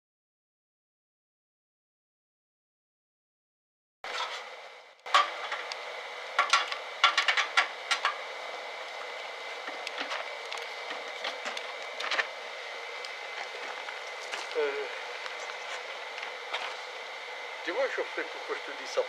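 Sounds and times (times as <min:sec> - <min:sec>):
steady hiss: 0:04.1 - 0:19.0.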